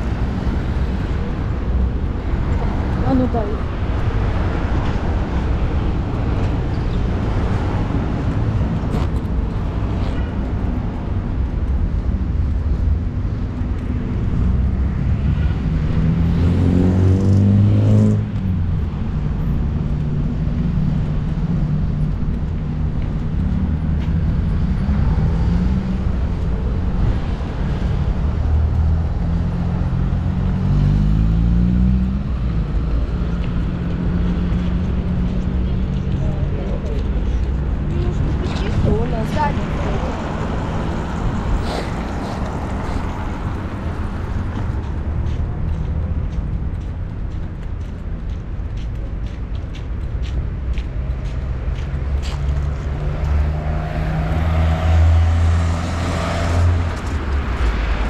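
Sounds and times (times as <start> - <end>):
car engines running: 0.0 - 58.0
vehicles passing: 0.0 - 58.0
vehicle accelerating loudly: 15.2 - 18.4, 52.8 - 57.6.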